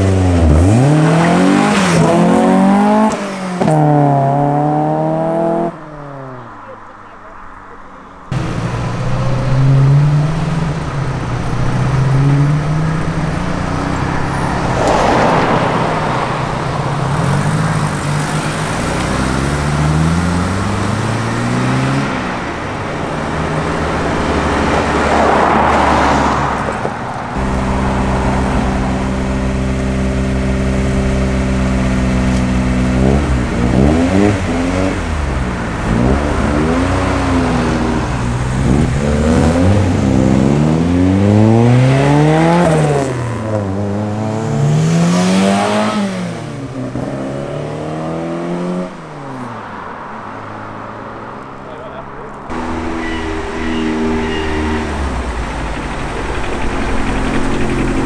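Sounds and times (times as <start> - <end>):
car engine revving: 0.0 - 58.0
cars passing with a rush: 0.0 - 58.0
car engine idling: 6.4 - 21.5, 22.2 - 33.8, 50.0 - 58.0.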